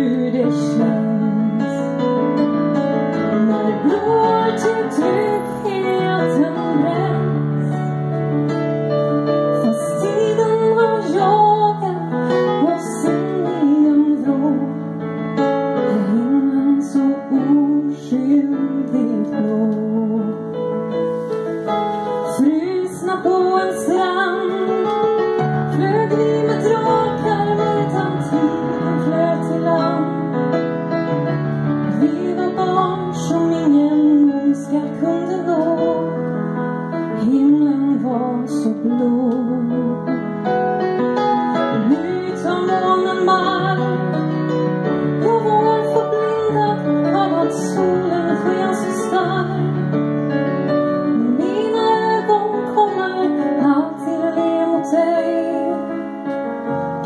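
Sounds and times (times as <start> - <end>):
woman singing through microphone: 0.0 - 1.9, 3.3 - 7.7, 9.6 - 14.8, 15.9 - 20.5, 22.3 - 30.3, 31.9 - 36.2, 37.1 - 40.2, 41.6 - 44.2, 45.2 - 49.9, 51.1 - 56.1
digital piano: 0.0 - 57.0.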